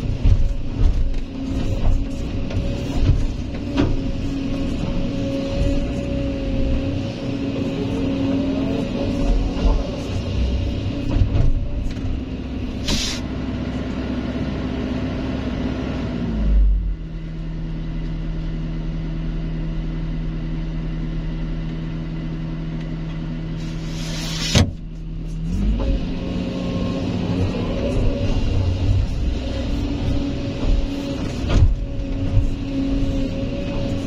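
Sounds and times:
excavator diesel engine running: 0.0s - 23.9s, 24.8s - 34.0s
hydraulic hiss: 12.8s - 13.3s.

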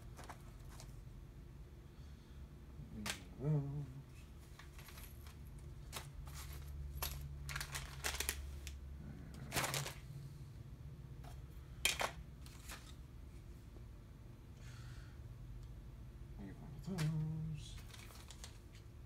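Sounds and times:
low steady hum: 0.0s - 19.0s
brief voice-like hum: 2.9s - 4.2s
plastic bags crinkling: 4.4s - 8.8s, 9.4s - 10.0s, 16.9s - 19.0s.

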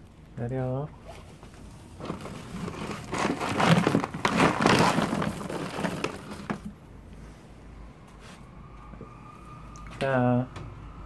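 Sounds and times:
plastic bag of dry food crinkling: 1.9s - 6.8s.

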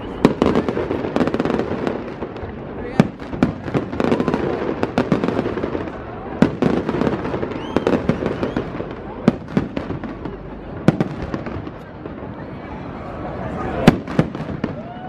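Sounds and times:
fireworks bangs: 0.0s - 15.0s
fireworks crackling: 0.0s - 15.0s.

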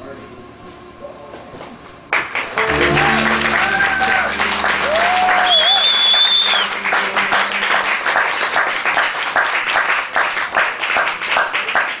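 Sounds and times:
audience applauding: 2.1s - 12.0s
held musical note: 2.6s - 9.7s.

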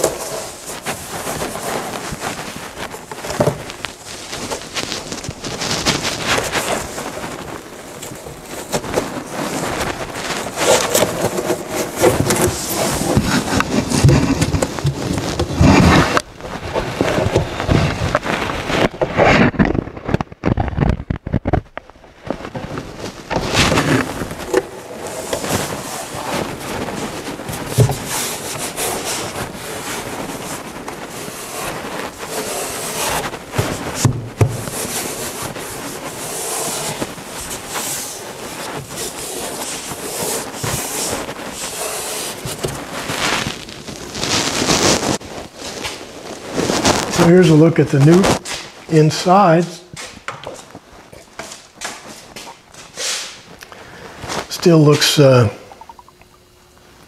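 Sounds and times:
cardboard panels scraping wood: 0.0s - 19.8s, 23.3s - 45.2s.

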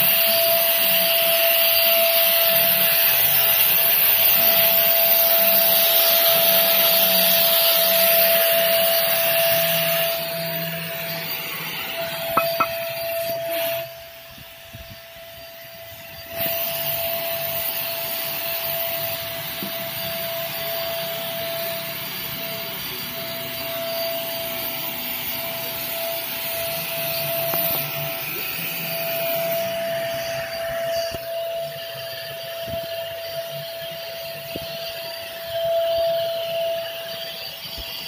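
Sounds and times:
paint spray gun motor whine: 0.0s - 38.0s.

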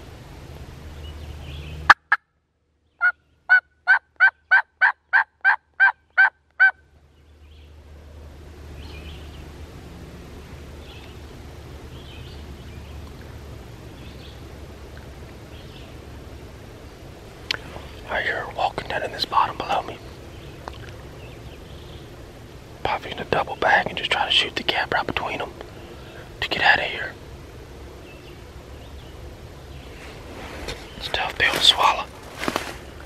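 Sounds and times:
distant small birds chirping: 0.0s - 33.0s
wild turkey yelping: 3.0s - 6.8s.

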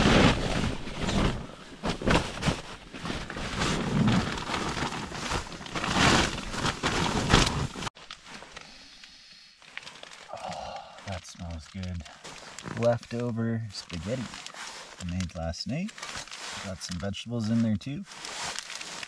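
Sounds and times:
foil sheet and tent fabric rustling: 0.0s - 8.6s, 9.7s - 19.0s.

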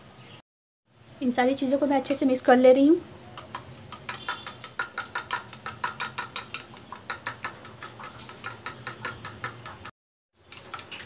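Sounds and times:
fork beating egg in bowl: 3.4s - 9.9s.

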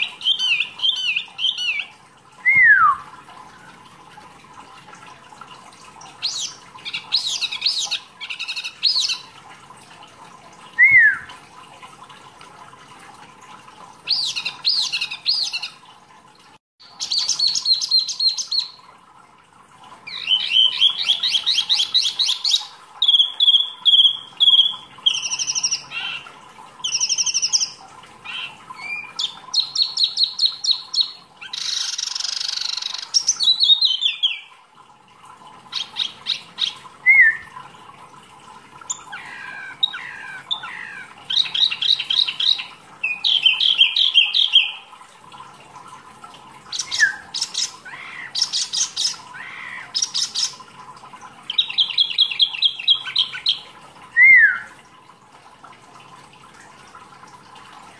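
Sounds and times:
songbird singing trills and whistles: 0.1s - 3.1s, 10.8s - 11.4s, 20.1s - 26.2s, 26.8s - 34.5s, 37.0s - 37.6s, 38.9s - 44.9s, 46.8s - 50.5s, 54.2s - 54.7s.

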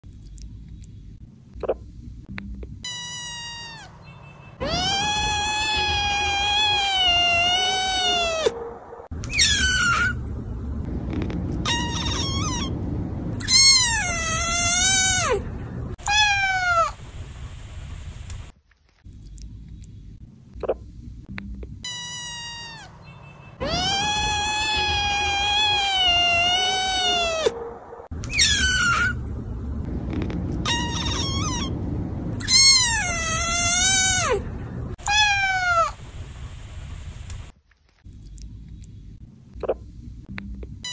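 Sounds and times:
kitten meowing: 2.9s - 3.9s, 4.6s - 8.6s, 9.2s - 10.2s, 11.6s - 12.7s, 16.0s - 17.0s, 23.6s - 27.6s, 28.2s - 29.2s, 30.6s - 31.7s, 32.4s - 34.4s, 35.0s - 36.0s.

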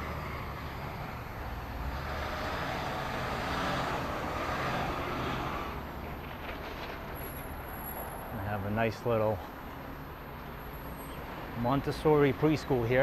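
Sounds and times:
truck driving past: 0.0s - 8.8s.

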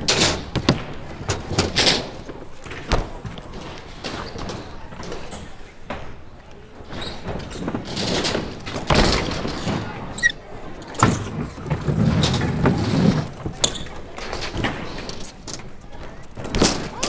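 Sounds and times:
bike tyres rolling on concrete: 0.0s - 17.0s
bike wheels landing thuds: 0.1s - 6.2s, 7.0s - 10.0s.

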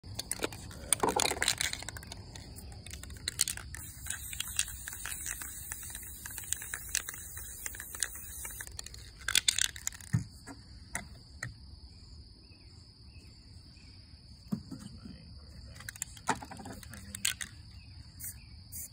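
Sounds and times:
insect trill: 0.0s - 18.9s
spray can rattling when shaken: 0.1s - 10.1s, 15.9s - 17.5s, 18.2s - 18.9s
spray can hissing: 3.0s - 9.1s, 18.2s - 18.9s.

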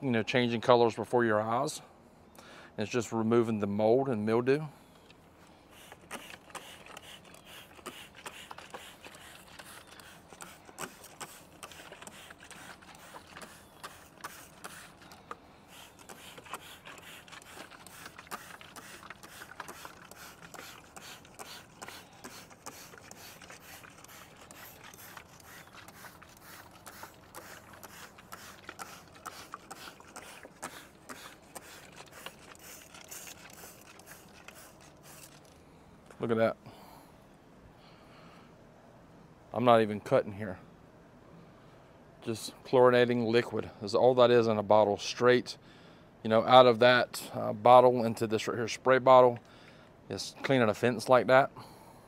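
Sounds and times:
spray bottle trigger clicks and spritz: 5.8s - 35.5s.

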